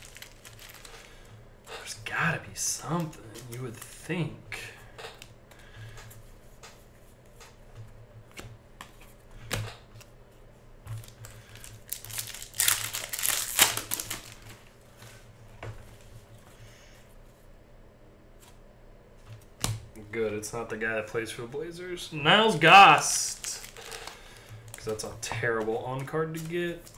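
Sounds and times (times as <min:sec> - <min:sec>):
foil wrapper crinkling and tearing: 0:00.0 - 0:01.3, 0:11.0 - 0:14.6, 0:22.8 - 0:25.1
cards clicking and tapping: 0:24.8 - 0:26.9.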